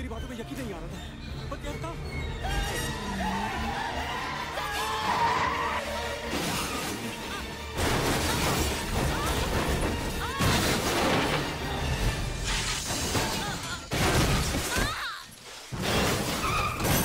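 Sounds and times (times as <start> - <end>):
dramatic background music: 0.0 - 14.8
heavy car crashes: 7.7 - 15.0, 15.7 - 17.0
glass shattering: 7.8 - 17.0.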